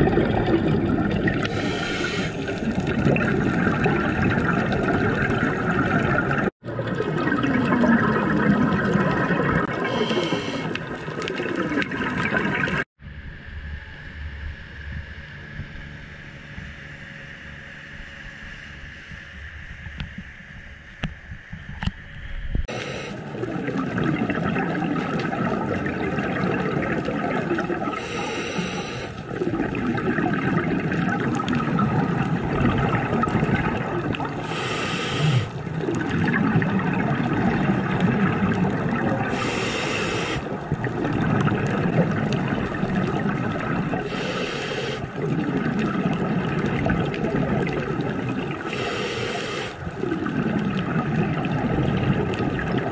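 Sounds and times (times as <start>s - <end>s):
bubbles gurgling underwater: 0.0s - 12.9s, 22.8s - 49.1s, 49.8s - 52.9s
breath hissing through regulator: 1.4s - 2.7s, 9.8s - 10.9s, 22.7s - 23.2s, 27.9s - 29.2s, 34.4s - 35.6s, 39.3s - 40.6s, 44.0s - 45.1s, 48.6s - 49.8s.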